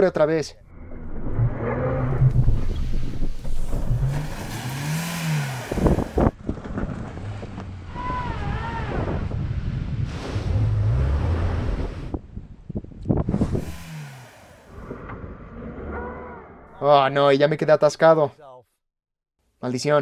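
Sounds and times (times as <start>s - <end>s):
car engines revving: 0.7s - 12.2s, 13.2s - 16.8s
wind on microphone: 5.6s - 6.7s, 7.4s - 15.1s.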